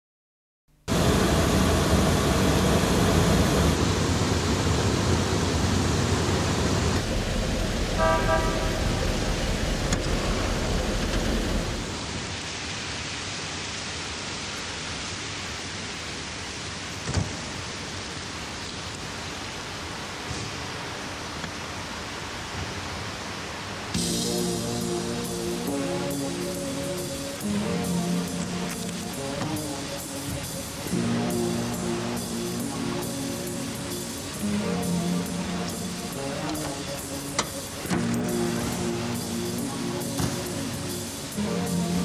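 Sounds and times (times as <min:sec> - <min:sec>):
steady hiss: 0:00.8 - 0:42.0
low rumble: 0:00.9 - 0:12.2
car horn toot: 0:07.9 - 0:09.2.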